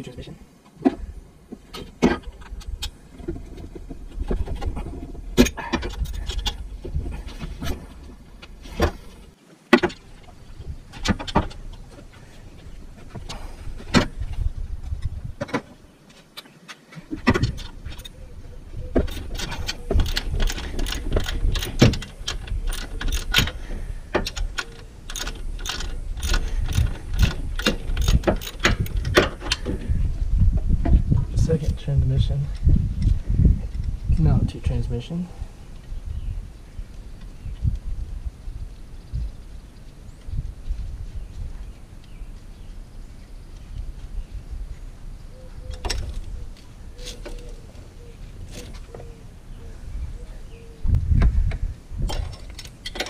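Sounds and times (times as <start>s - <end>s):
low rumble: 1.0s - 9.4s.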